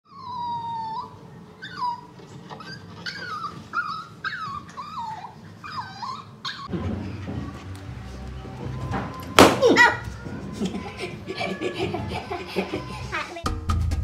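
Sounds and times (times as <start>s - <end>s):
puppy howling and whining: 0.1s - 6.7s, 8.7s - 13.0s.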